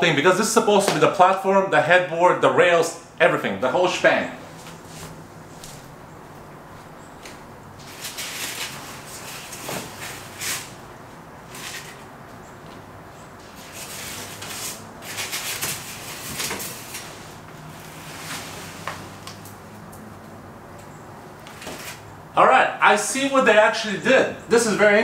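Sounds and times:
cardboard and packing rustling: 6.8s - 10.8s, 13.4s - 19.4s.

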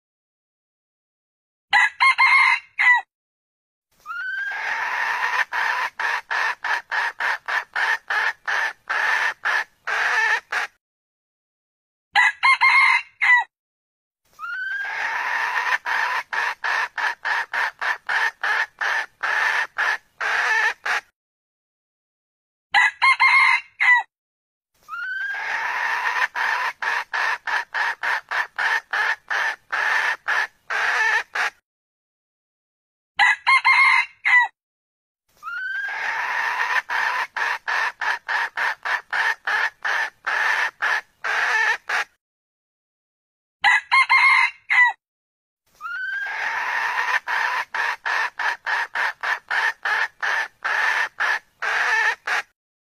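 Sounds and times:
rooster crowing: 1.7s - 3.1s, 12.2s - 13.5s, 22.8s - 24.1s, 33.2s - 34.5s, 43.6s - 45.0s
rapid clucking: 5.0s - 10.7s, 15.5s - 21.0s, 26.0s - 31.5s, 36.5s - 42.1s, 46.8s - 52.5s.

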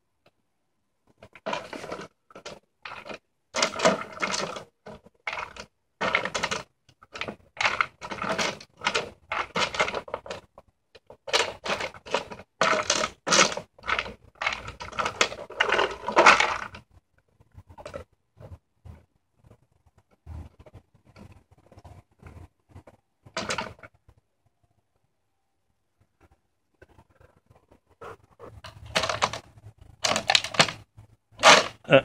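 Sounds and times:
plastic bottles clattering: 1.1s - 16.9s, 23.2s - 23.9s, 28.6s - 32.0s
dry treats rattling: 1.2s - 16.8s, 28.6s - 30.8s, 31.4s - 31.8s.

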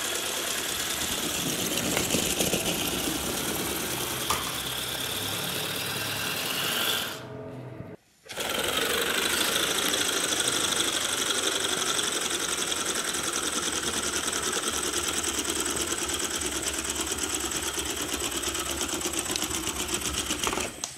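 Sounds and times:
air motor rapid clatter: 0.0s - 7.2s, 8.3s - 20.9s
air hissing from motor: 0.0s - 7.4s.

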